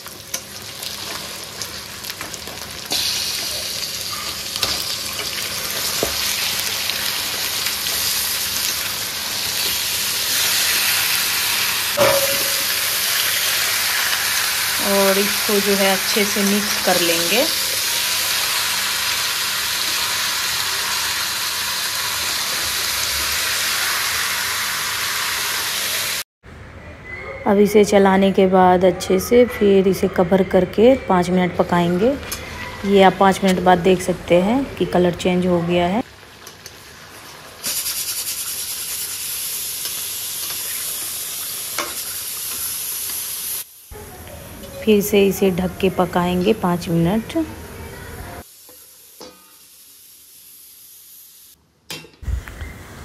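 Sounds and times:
chicken sizzling in hot oil: 0:00.0 - 0:26.3, 0:36.0 - 0:44.0, 0:48.4 - 0:51.6.

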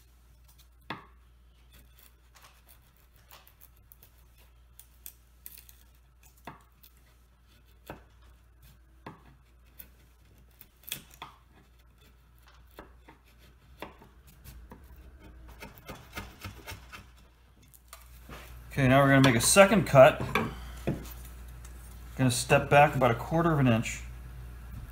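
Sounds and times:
chisel cutting wood veneer: 0:01.6 - 0:04.5, 0:05.8 - 0:17.2.

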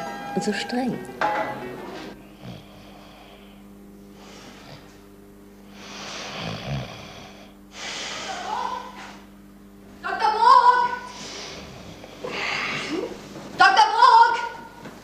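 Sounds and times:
low electrical hum: 0:00.0 - 0:15.0
man breathing heavily: 0:02.2 - 0:04.9, 0:05.6 - 0:08.4, 0:11.1 - 0:13.1.

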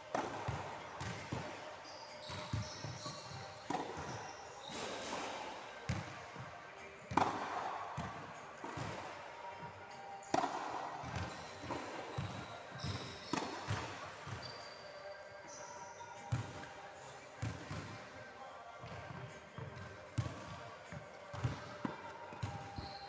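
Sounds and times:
rackets striking tennis ball: 0:00.1 - 0:01.5, 0:03.6 - 0:05.4, 0:07.0 - 0:09.1, 0:10.2 - 0:14.4.

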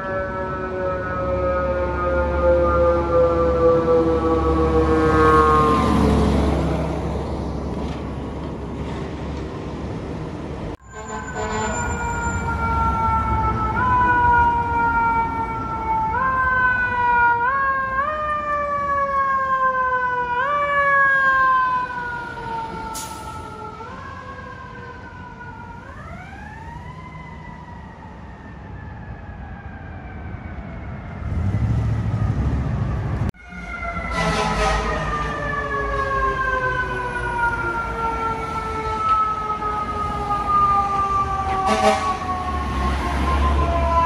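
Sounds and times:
fire engine siren wailing: 0:00.0 - 0:08.0, 0:10.7 - 0:44.0
second siren falling in pitch: 0:33.4 - 0:44.0.

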